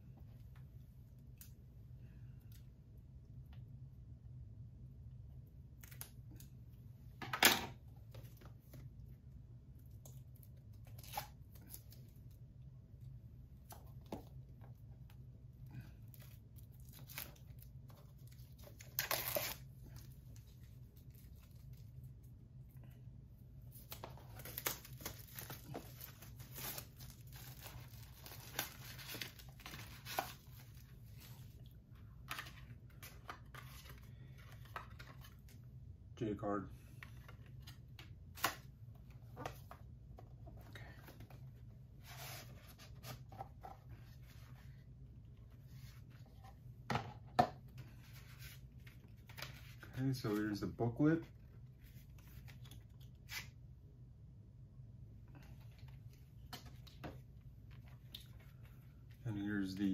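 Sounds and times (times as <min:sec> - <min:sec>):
plastic wrap crinkling: 0:23.8 - 0:30.9.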